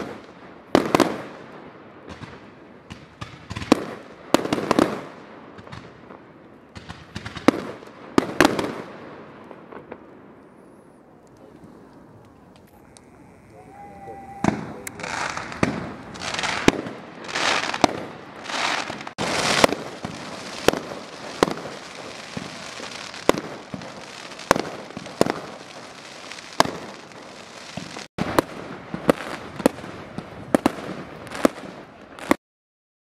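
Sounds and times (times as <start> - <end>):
fireworks bangs: 0.0 - 32.4
fireworks rushing hisses: 9.9 - 32.4.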